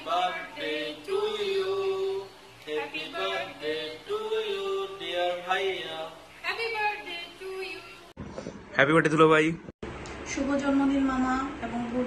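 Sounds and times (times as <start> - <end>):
man singing unaccompanied: 0.0 - 6.4.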